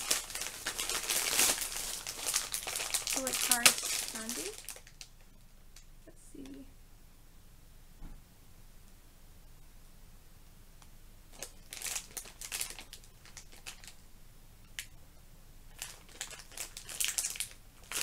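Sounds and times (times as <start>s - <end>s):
plastic sweet packet crinkling: 0.0s - 6.6s, 11.3s - 14.0s, 14.7s - 15.0s, 15.7s - 18.0s.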